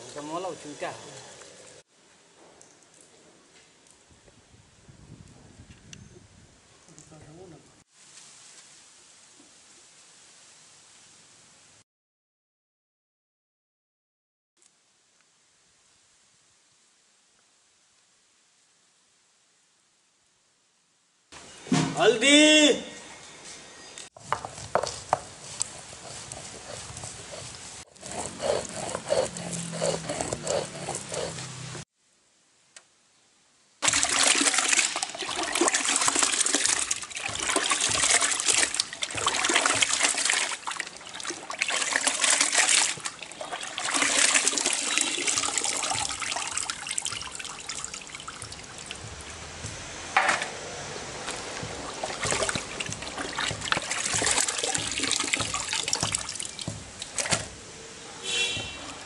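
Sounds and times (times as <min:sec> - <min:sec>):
fish washed by hand in water: 0:33.8 - 0:49.6, 0:51.0 - 0:57.5.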